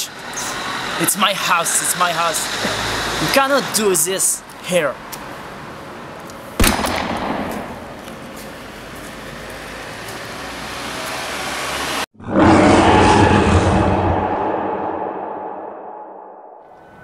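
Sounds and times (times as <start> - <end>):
loud bang: 6.6 - 8.0, 12.4 - 16.6.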